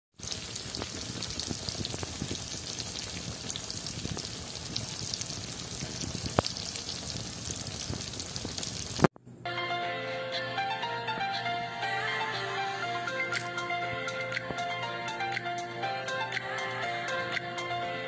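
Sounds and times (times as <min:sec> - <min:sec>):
fish sizzling in oil: 0:00.2 - 0:09.1
oil popping: 0:00.2 - 0:09.1.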